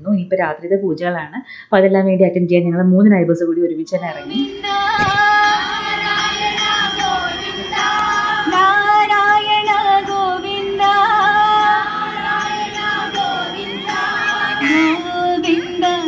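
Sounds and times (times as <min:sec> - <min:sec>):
women singing devotional song: 0:03.9 - 0:16.0
percussion beat: 0:04.8 - 0:08.7.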